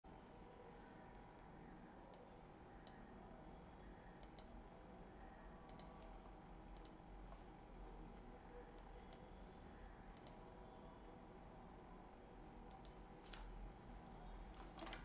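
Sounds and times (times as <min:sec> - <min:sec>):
computer mouse clicks: 0:02.1 - 0:03.0, 0:04.2 - 0:04.6, 0:05.7 - 0:07.4, 0:08.7 - 0:09.3, 0:10.1 - 0:10.4, 0:12.7 - 0:13.5, 0:14.5 - 0:15.0.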